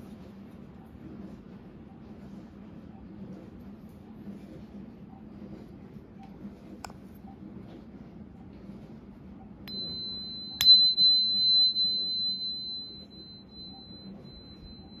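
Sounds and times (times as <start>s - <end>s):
tuning fork ringing: 9.6s - 15.0s.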